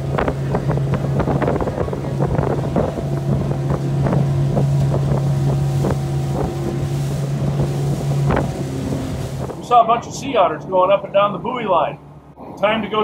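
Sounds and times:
wind on microphone: 0:00.0 - 0:09.7
hull slapping against waves: 0:00.0 - 0:11.2
boat motor humming: 0:00.0 - 0:13.0.

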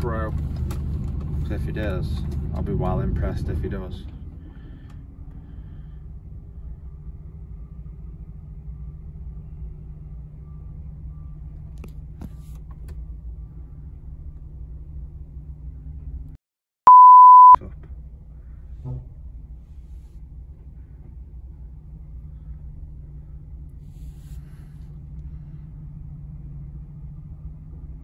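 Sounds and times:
censor bleep: 0:16.9 - 0:17.6.

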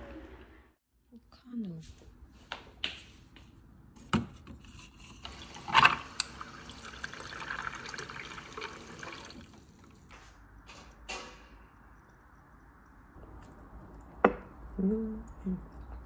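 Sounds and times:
water pouring into a mug: 0:05.2 - 0:10.1.

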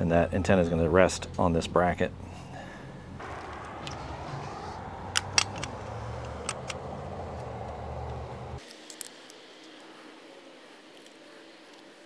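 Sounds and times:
low rumble: 0:03.2 - 0:08.6.

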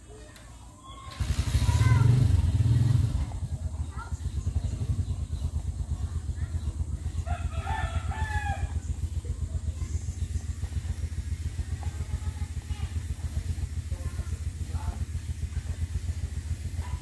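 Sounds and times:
low pulsing engine rumble: 0:00.0 - 0:17.0
rooster crowing: 0:07.2 - 0:08.9.

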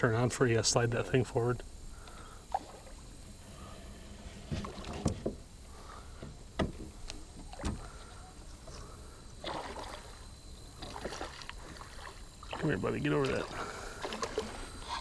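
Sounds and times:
splashing or rustling: 0:02.5 - 0:15.0
knocks on aluminum boat hull: 0:06.2 - 0:07.0.

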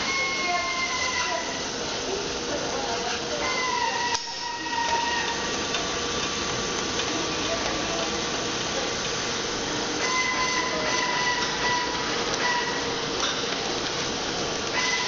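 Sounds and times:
workshop machinery hiss and hum: 0:00.0 - 0:15.0.

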